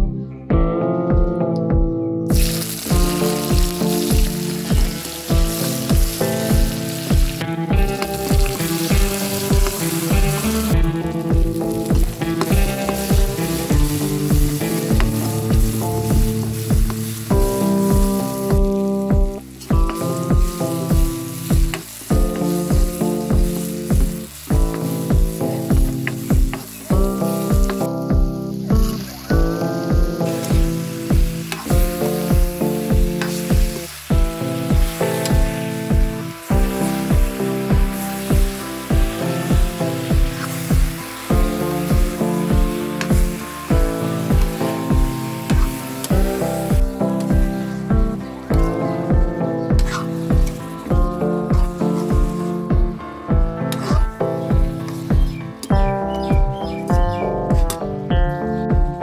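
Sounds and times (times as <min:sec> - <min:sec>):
music with steady beat: 0:00.0 - 0:59.0
onion sizzling in hot oil: 0:02.3 - 0:57.8
spatula stirring in wok: 0:36.5 - 0:46.4.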